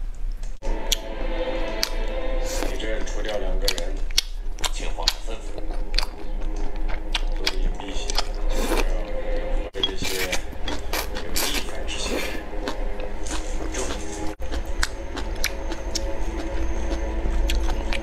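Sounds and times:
low steady hum: 0:00.0 - 0:18.0
chewing: 0:01.7 - 0:18.0
noodles slurped: 0:09.8 - 0:18.0.

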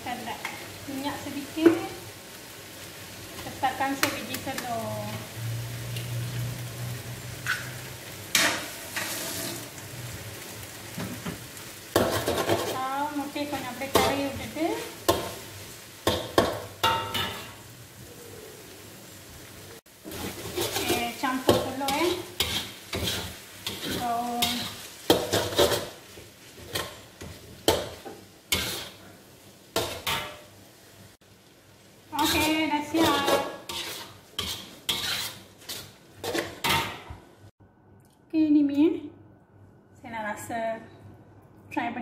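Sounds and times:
noodles sizzling in a wok: 0:00.0 - 0:37.6
spatula scraping a wok: 0:07.4 - 0:09.8, 0:12.0 - 0:17.6, 0:20.0 - 0:30.5, 0:32.1 - 0:37.1.

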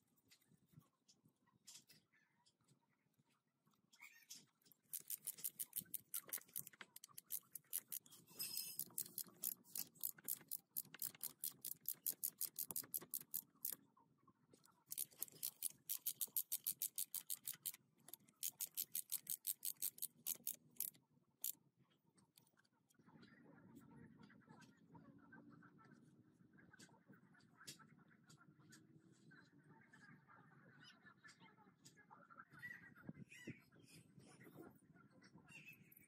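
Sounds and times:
ratchet wrench clicking: 0:04.9 - 0:08.0, 0:08.7 - 0:13.8, 0:14.9 - 0:21.6.

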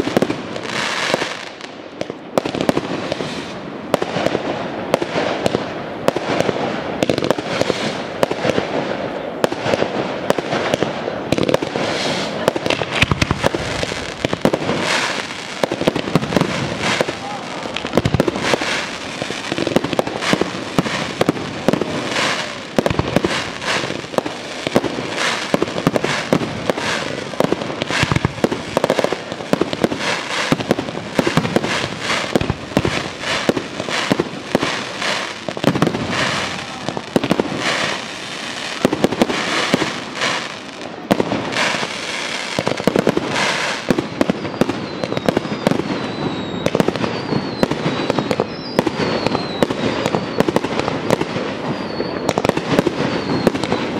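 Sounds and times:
crackling fireworks: 0:00.0 - 0:53.9
firework shells bursting: 0:12.1 - 0:40.5
high wavering whistle: 0:44.1 - 0:50.5, 0:51.7 - 0:52.4, 0:53.0 - 0:53.8.

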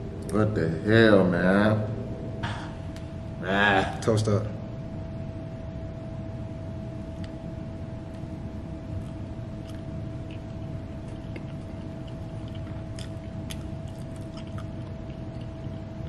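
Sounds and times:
low room rumble with hum: 0:00.0 - 0:16.0
people chewing: 0:08.9 - 0:16.0.

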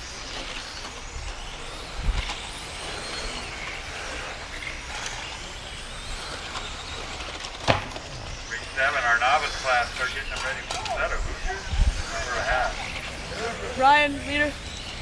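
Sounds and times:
rc car motors whining: 0:00.0 - 0:15.0
steady outdoor ambience: 0:00.0 - 0:15.0
wind rumbling on microphone: 0:01.0 - 0:02.9, 0:07.8 - 0:15.0.

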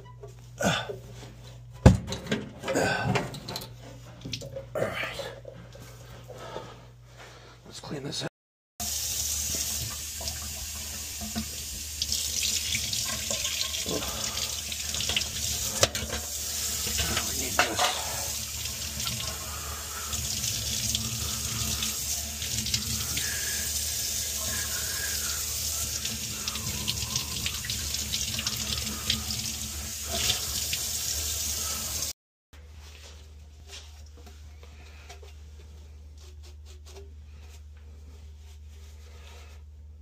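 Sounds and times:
faucet running into metal sink: 0:08.8 - 0:32.1.

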